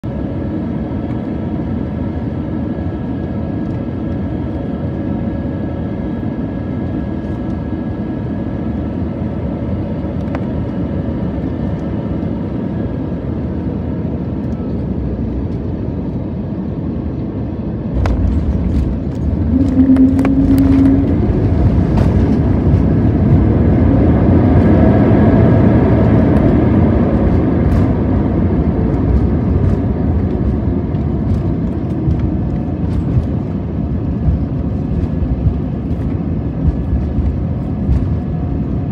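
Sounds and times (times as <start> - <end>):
aircraft engine and airflow noise: 0.0 - 38.9
landing rumble and thumps: 17.9 - 24.8, 26.2 - 38.9.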